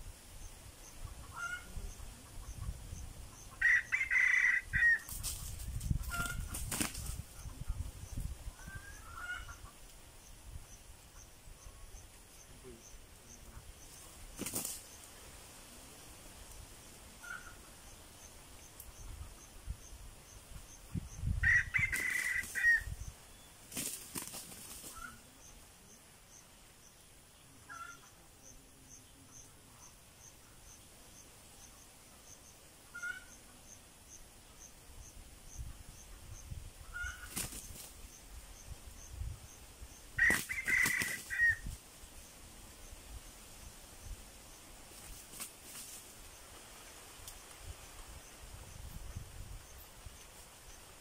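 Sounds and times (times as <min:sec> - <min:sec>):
wing flapping: 0:04.9 - 0:07.4, 0:14.2 - 0:15.0, 0:21.7 - 0:22.9, 0:23.6 - 0:25.2, 0:37.0 - 0:38.0, 0:40.2 - 0:41.8, 0:44.9 - 0:46.2.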